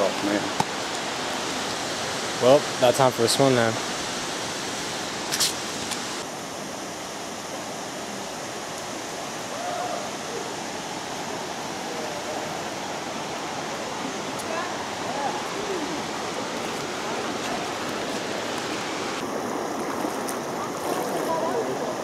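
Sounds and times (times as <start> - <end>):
flowing water rushing: 0.0 - 22.0.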